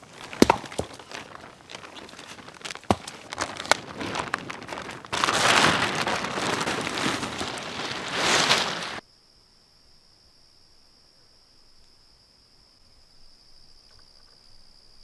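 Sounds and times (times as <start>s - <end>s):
tarp rustling and flapping: 0.0s - 9.0s.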